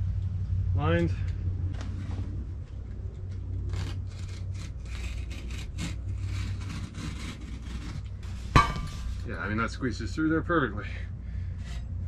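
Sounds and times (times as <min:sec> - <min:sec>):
blade rasping through fabric: 0:03.6 - 0:08.5.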